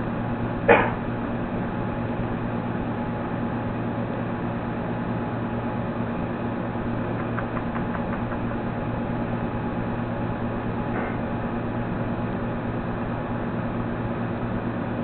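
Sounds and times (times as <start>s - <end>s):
background hum and hiss: 0.0s - 15.0s.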